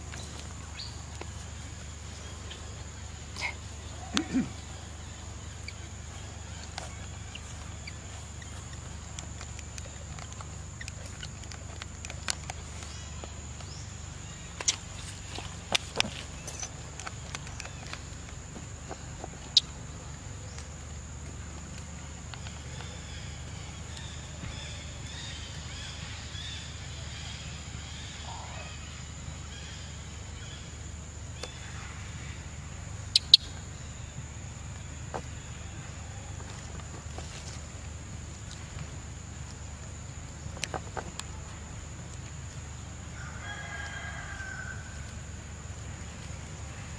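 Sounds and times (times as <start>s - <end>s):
insect drone: 0.0s - 46.9s
rooster crowing: 43.2s - 45.1s.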